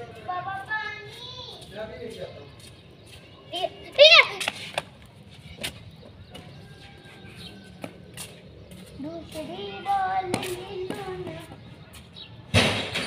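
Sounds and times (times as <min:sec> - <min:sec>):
child singing: 0:09.0 - 0:11.6.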